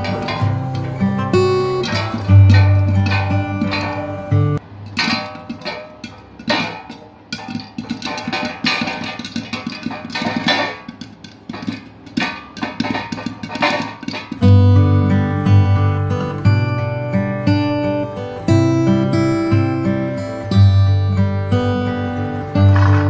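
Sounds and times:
light percussion: 0.0 - 15.0
plucked strings: 0.0 - 23.0.

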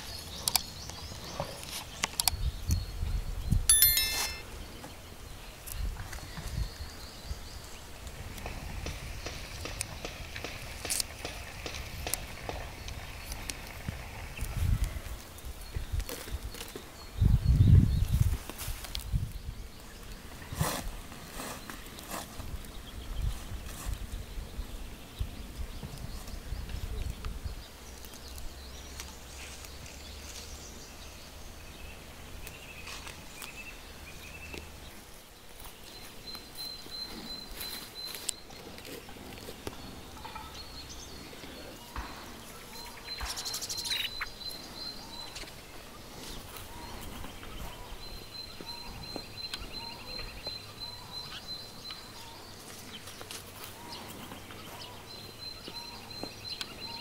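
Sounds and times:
small birds singing: 0.0 - 57.0
dry leaves and twigs rustling: 18.0 - 19.5, 27.9 - 31.0, 37.5 - 40.4, 51.8 - 54.8.

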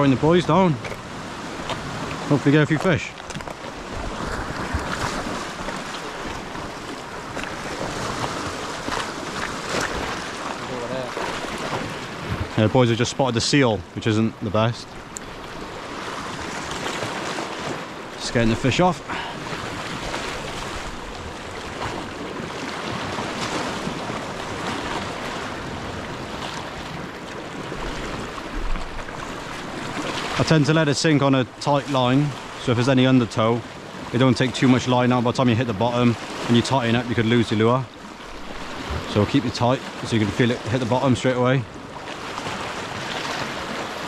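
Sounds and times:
surf breaking against rocks: 0.0 - 13.0
surf washing against rocks: 0.0 - 44.0
wind buffeting microphone: 38.5 - 39.3.

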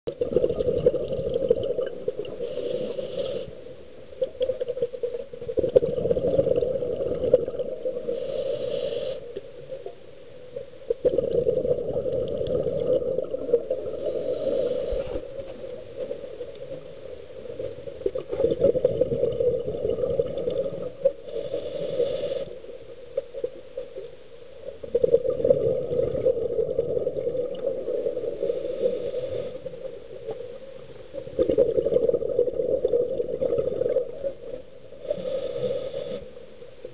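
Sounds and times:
exhaled bubbles underwater: 0.1 - 10.0, 10.6 - 24.0, 24.7 - 35.8
regulator inhalation hiss: 2.4 - 3.6, 8.0 - 9.4, 13.9 - 15.2, 21.2 - 22.6, 28.3 - 29.8, 35.0 - 36.4.

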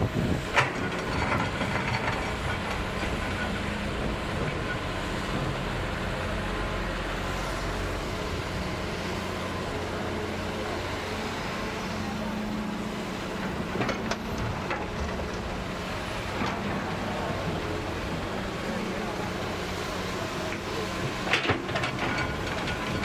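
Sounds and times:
excavator diesel engine running: 0.0 - 23.0.

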